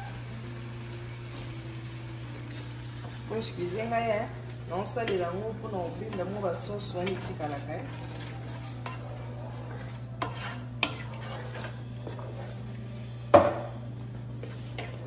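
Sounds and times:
wooden spoon scraping a pot: 5.0s - 12.8s, 14.4s - 15.0s
sharp knock on pot: 13.4s - 13.7s.

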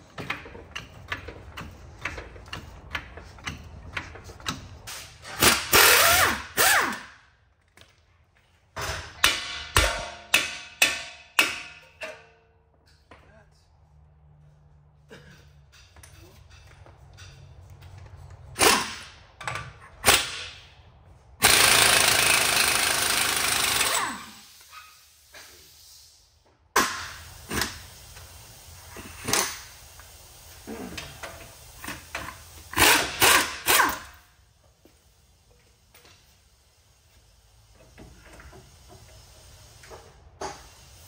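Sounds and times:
impact wrench running: 5.2s - 7.2s, 18.6s - 19.2s, 21.4s - 24.5s, 31.8s - 34.2s.

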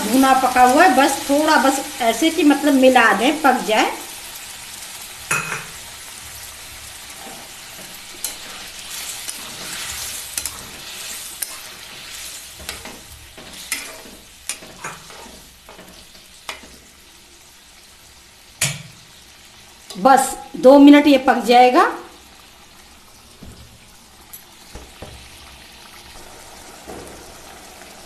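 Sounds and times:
curry sizzling in a metal pan: 0.0s - 28.0s
spatula scraping a pan: 5.5s - 17.2s.

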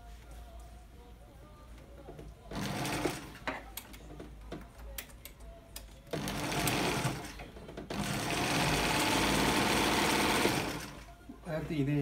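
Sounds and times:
sewing machine running: 2.5s - 3.4s, 6.2s - 11.1s.

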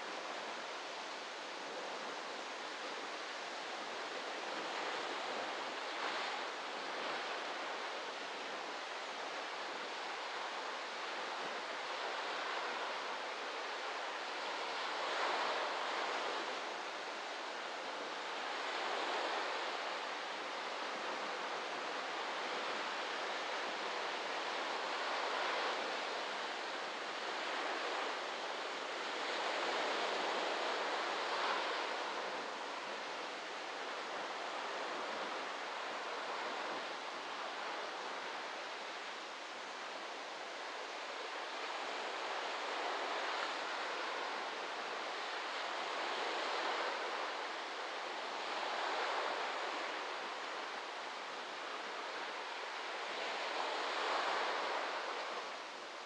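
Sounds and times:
waves breaking on beach: 0.0s - 56.0s.

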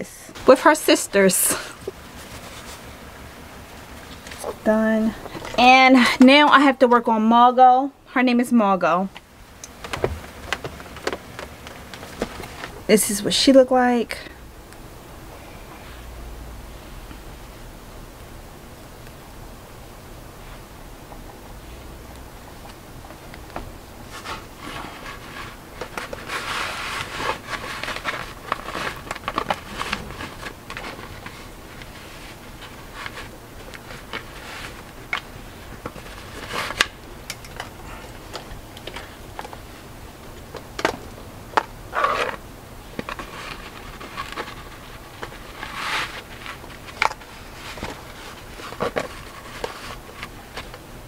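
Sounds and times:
hair and fabric rustling: 0.0s - 7.2s.

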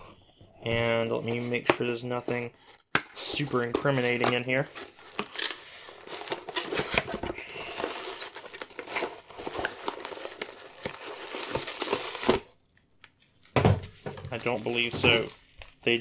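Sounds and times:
packing material crinkling: 3.3s - 16.0s.

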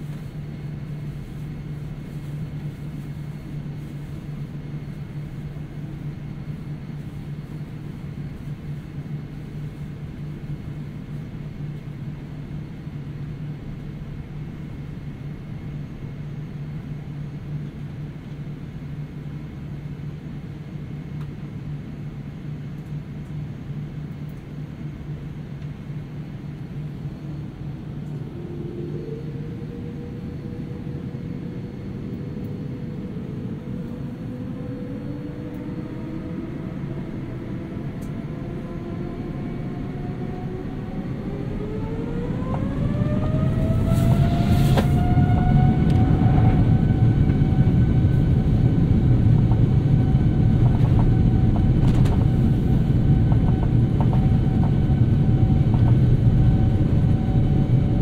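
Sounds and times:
aircraft engine hum: 0.0s - 58.0s
rising high tone: 34.3s - 47.9s.

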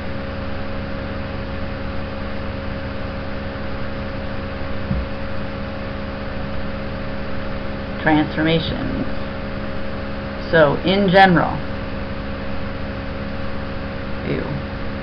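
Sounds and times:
low electrical hum: 0.0s - 15.0s
soft low bump: 4.9s - 5.2s.

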